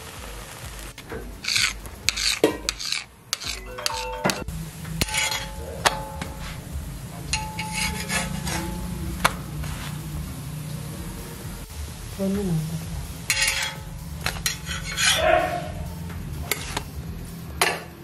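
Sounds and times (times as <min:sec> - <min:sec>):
oil sizzling: 0:00.0 - 0:18.0
metal spatula scraping griddle: 0:01.1 - 0:04.4, 0:05.0 - 0:10.0, 0:13.3 - 0:15.8, 0:16.4 - 0:16.9.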